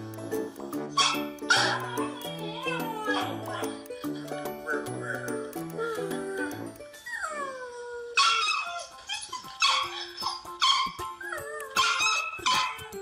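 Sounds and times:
dog yelping barks: 1.0 - 1.8, 8.2 - 13.0
dog whining: 4.6 - 13.0.

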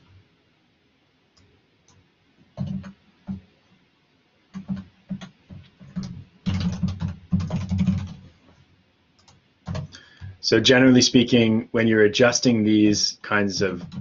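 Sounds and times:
typing on computer keyboard: 2.6 - 3.4, 4.5 - 8.2, 9.2 - 10.3, 13.6 - 14.0.

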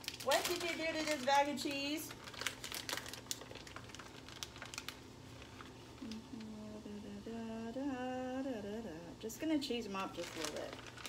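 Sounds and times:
plastic bag crinkling: 0.0 - 6.2, 9.9 - 11.0
woman humming: 6.0 - 9.2.

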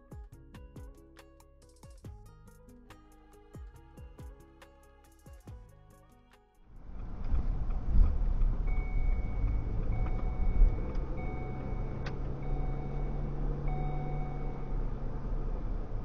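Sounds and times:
car engine and road noise: 0.0 - 16.0
electronic beep: 8.7 - 14.8.

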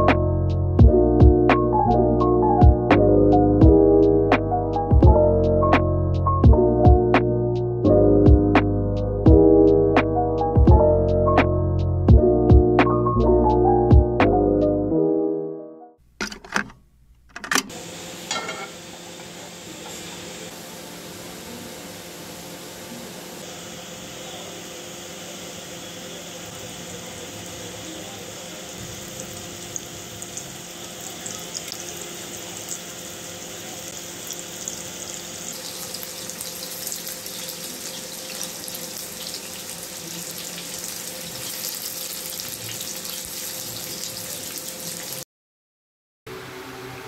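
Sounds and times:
chicken sizzling in oil: 17.7 - 45.2.

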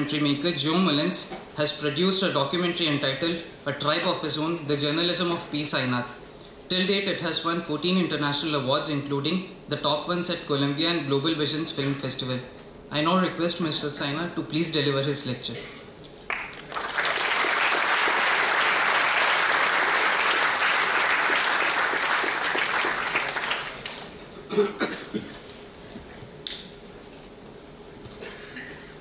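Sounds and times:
audience applause: 16.3 - 24.2.

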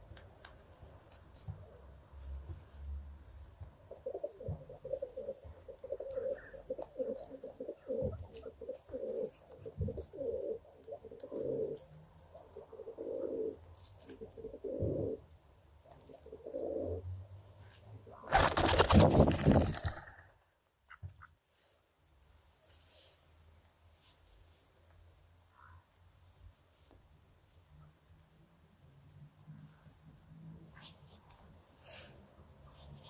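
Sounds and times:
pigeons cooing: 3.9 - 15.2, 16.0 - 17.0.

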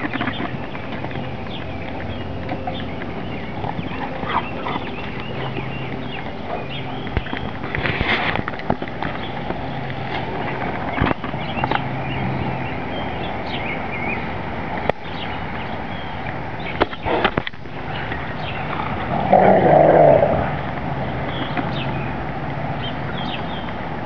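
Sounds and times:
dog growling: 18.7 - 20.6.

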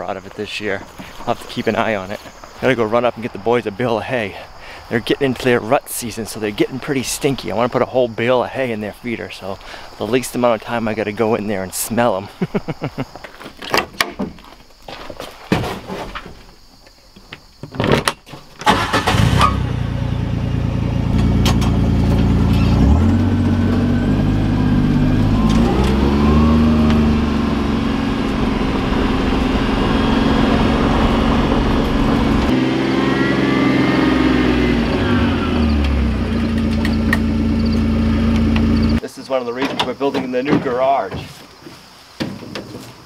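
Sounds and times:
tyres on gravel: 0.0 - 12.0, 21.1 - 39.0
utility vehicle engine running: 18.7 - 39.0.

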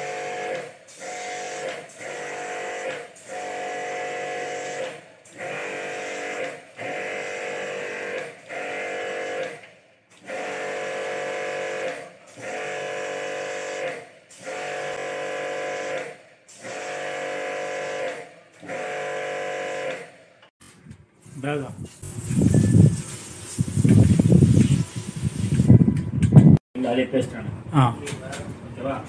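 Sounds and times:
pressure washer motor whining: 0.0 - 20.1
water spraying onto metal coil: 21.3 - 25.7.

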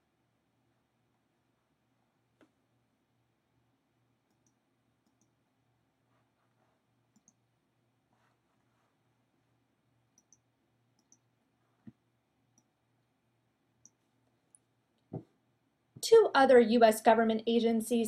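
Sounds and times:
faint clicks: 4.3 - 5.4, 7.2 - 7.4, 10.2 - 10.4, 11.0 - 11.2.

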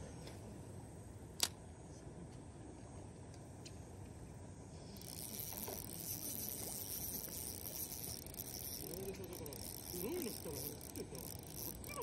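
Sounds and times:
fishing reel whirring: 4.9 - 12.0.

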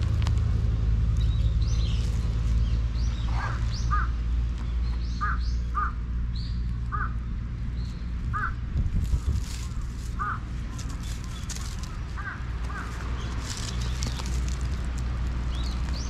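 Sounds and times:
steady low rumble: 0.0 - 16.0
birds calling: 0.9 - 16.0.

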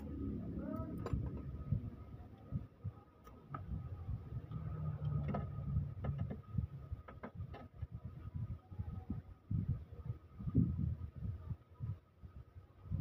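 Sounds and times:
low rumble: 0.0 - 7.1.

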